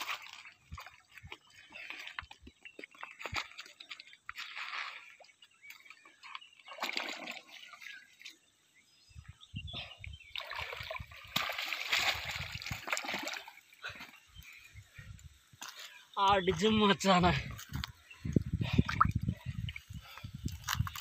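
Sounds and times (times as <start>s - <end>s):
fish splashing in water: 6.6s - 8.1s, 10.4s - 13.7s.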